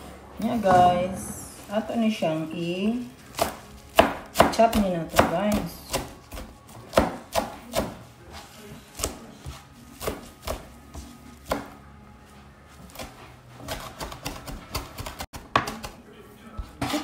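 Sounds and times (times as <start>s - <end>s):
knife chopping on cutting board: 3.3s - 8.0s, 8.9s - 11.8s, 12.9s - 16.0s.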